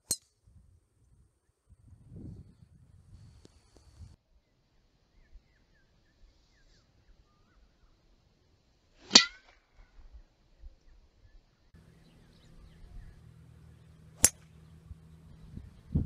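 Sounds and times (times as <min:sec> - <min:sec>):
faint low hum: 0:10.1 - 0:16.0
golf club striking ball: 0:11.8 - 0:15.2.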